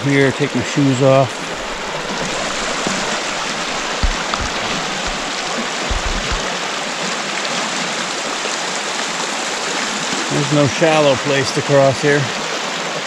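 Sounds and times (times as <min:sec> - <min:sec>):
river rushing over rocks: 0:01.0 - 0:10.2
low thumps on microphone: 0:01.3 - 0:06.5.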